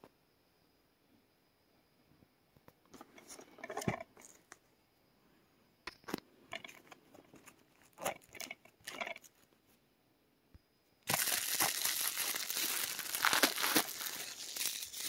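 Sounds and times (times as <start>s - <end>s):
plastic case clicks and rustles: 3.0s - 4.6s, 5.9s - 9.4s.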